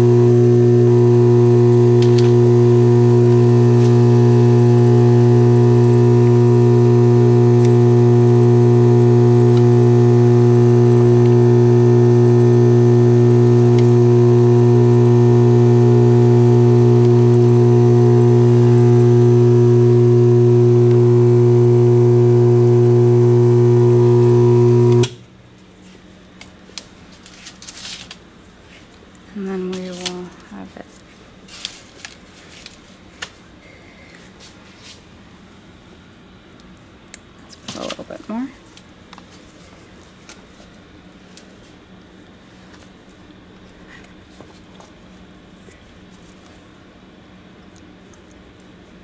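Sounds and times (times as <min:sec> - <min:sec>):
vibrator electric buzz: 0:00.0 - 0:25.2.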